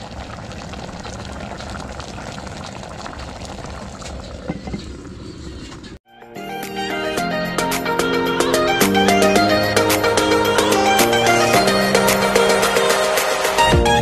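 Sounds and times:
stew bubbling in a pot: 0.0s - 5.9s
music: 6.1s - 14.0s.

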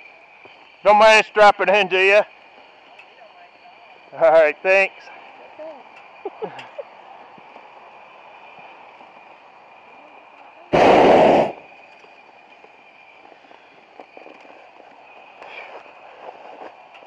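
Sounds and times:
propane burner blast: 10.7s - 11.9s.

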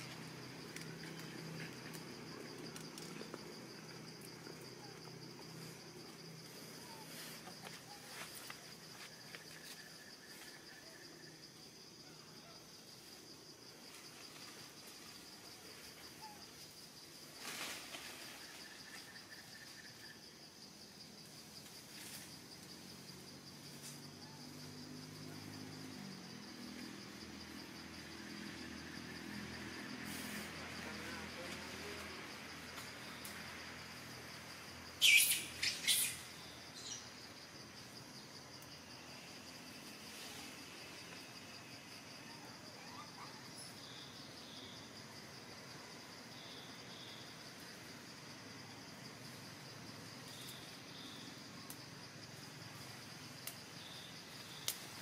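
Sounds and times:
high-pitched insect trill: 0.0s - 55.0s
second insect tone: 13.9s - 45.0s, 45.9s - 55.0s
short shrill calls: 35.0s - 36.9s.

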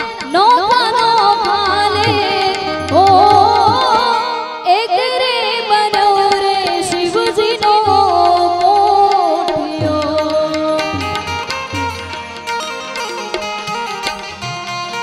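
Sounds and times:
hand drum beats: 0.0s - 4.4s, 5.9s - 15.0s
woman singing: 0.0s - 11.9s
harmonium tones: 0.0s - 15.0s.

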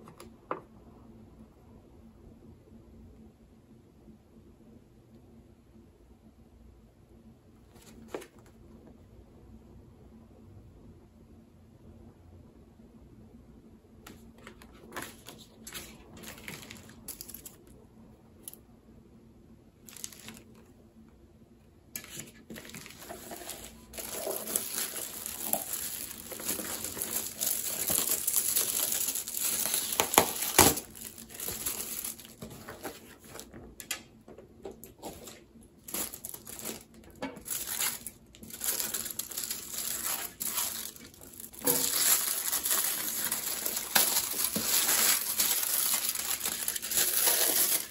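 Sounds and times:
packaging crinkling and ripping: 19.8s - 20.6s, 22.0s - 33.6s, 34.8s - 47.9s.

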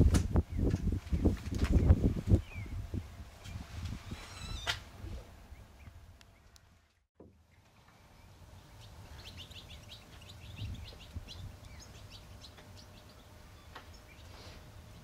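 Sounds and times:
low background rumble: 0.0s - 15.0s
swallow twittering: 8.7s - 14.4s.

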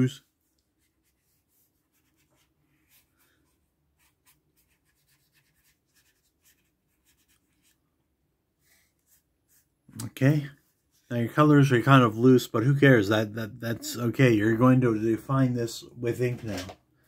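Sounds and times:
colouring scratches on paper: 0.2s - 7.8s, 8.6s - 9.7s.

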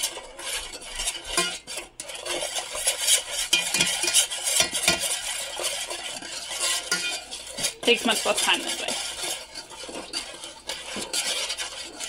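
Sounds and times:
teaspoon scraping and clinking in saucepan: 0.0s - 12.0s.

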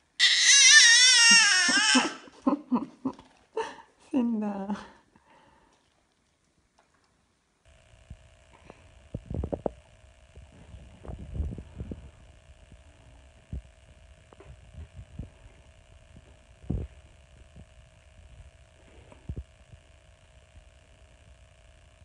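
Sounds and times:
electrical hum with tone: 0.0s - 22.0s.

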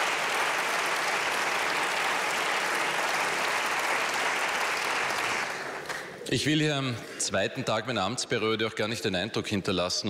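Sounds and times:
audience applause: 0.0s - 6.2s.

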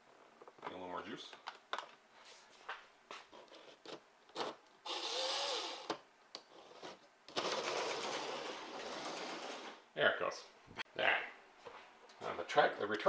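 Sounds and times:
slot car motor whining: 4.9s - 5.9s.

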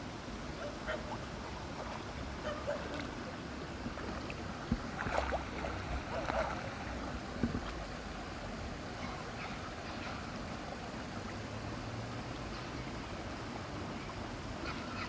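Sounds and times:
water sloshing and splashing: 0.6s - 10.2s.

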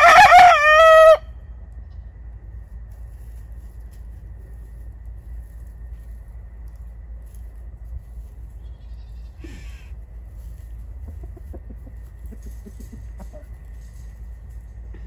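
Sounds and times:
steady low rumble: 0.0s - 15.0s
chicken low clucks: 10.8s - 13.8s.

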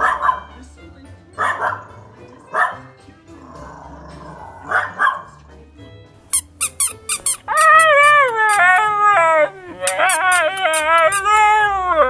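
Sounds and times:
small dog barking: 0.0s - 0.5s, 1.4s - 1.9s, 2.5s - 2.8s, 4.7s - 5.3s
high squeaks: 6.3s - 11.8s
husky howling: 7.5s - 12.0s.

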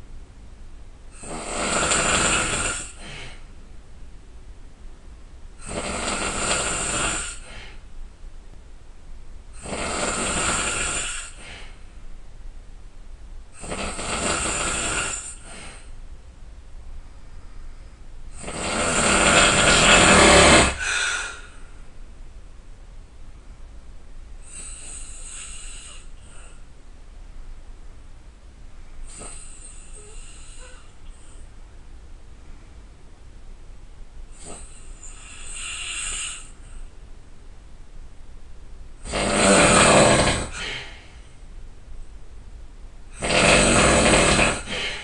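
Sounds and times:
person snoring loudly: 1.2s - 3.4s, 5.6s - 7.7s, 9.6s - 11.7s, 13.6s - 15.9s, 18.4s - 21.6s, 24.4s - 26.6s, 29.1s - 30.9s, 34.3s - 36.6s, 39.0s - 41.0s, 43.1s - 45.0s
faint breath: 2.8s - 3.6s, 7.3s - 8.0s, 11.1s - 12.0s, 15.1s - 16.0s, 17.1s - 18.2s, 20.7s - 21.9s, 24.4s - 26.7s, 28.8s - 31.6s, 34.3s - 37.0s, 40.4s - 41.4s, 43.8s - 45.0s.

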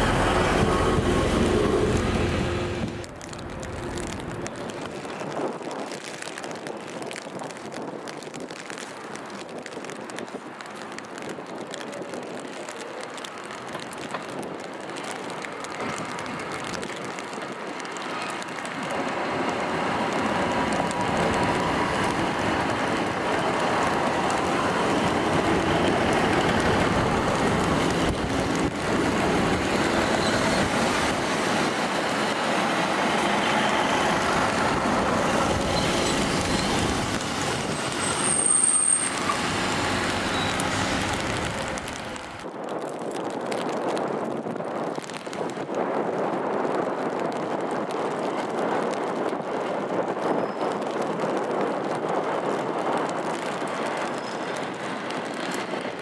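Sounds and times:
diesel train passing: 0.0s - 4.6s, 18.7s - 42.4s
high-pitched squeal: 32.6s - 42.4s.

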